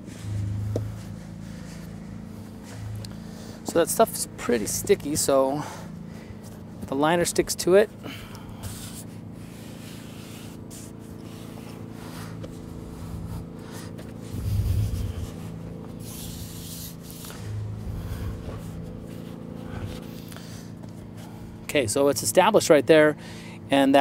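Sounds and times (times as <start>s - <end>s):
dull low thuds: 0.0s - 3.8s
steady low hum: 0.0s - 24.0s
pond liner rubbing: 8.6s - 20.8s.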